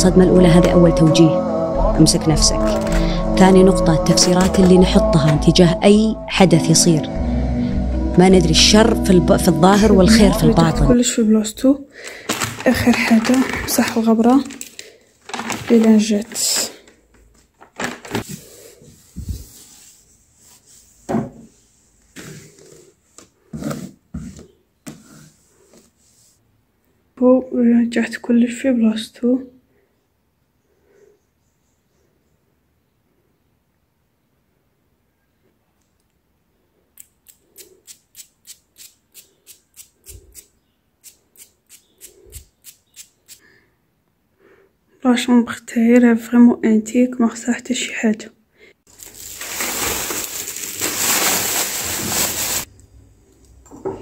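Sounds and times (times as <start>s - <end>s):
wet wipe rubbing: 18.3s - 26.4s
objects knocking on wooden dresser: 21.1s - 21.5s.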